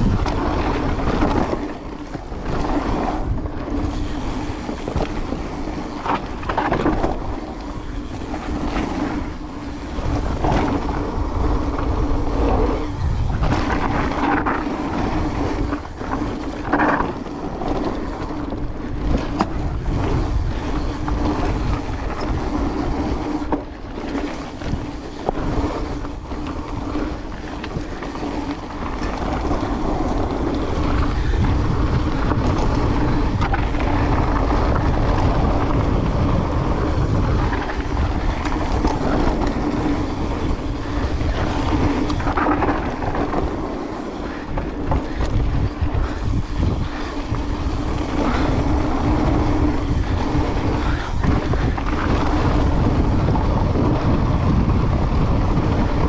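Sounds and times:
rumble and rattle over rough ground: 0.0s - 56.0s
wind rushing over microphone: 0.0s - 56.0s.

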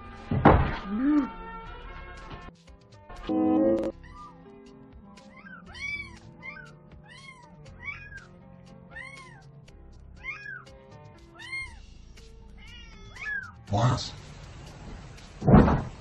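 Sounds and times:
background music: 0.0s - 16.0s
cat meowing: 3.3s - 4.5s, 5.2s - 8.3s, 8.9s - 9.5s, 10.2s - 10.7s, 11.3s - 11.9s, 12.6s - 13.6s.

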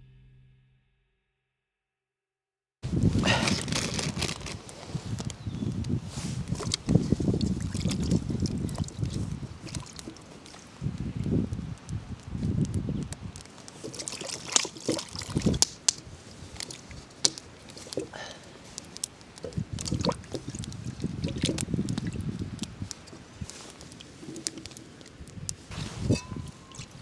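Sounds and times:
water poured and sloshing: 3.3s - 5.3s, 6.1s - 10.9s, 13.5s - 18.8s, 19.4s - 27.0s.

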